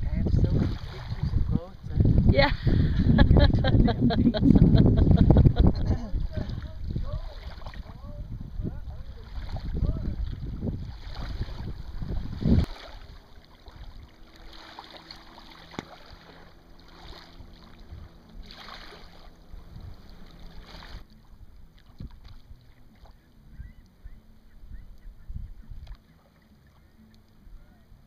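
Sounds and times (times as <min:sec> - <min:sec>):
wind rumbling on microphone: 0:00.0 - 0:15.2, 0:16.0 - 0:26.0
water lapping against boat hull: 0:05.3 - 0:08.2, 0:08.9 - 0:27.4.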